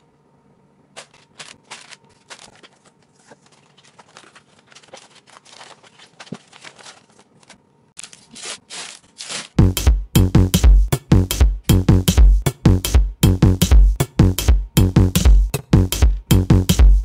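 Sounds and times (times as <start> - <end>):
paper rustling: 0.9 - 9.6
plastic bags crinkling: 1.0 - 9.6.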